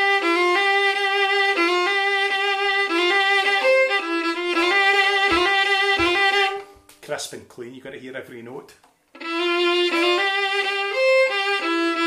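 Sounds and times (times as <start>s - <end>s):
solo fiddle playing a reel: 0.0s - 6.7s, 9.1s - 12.0s.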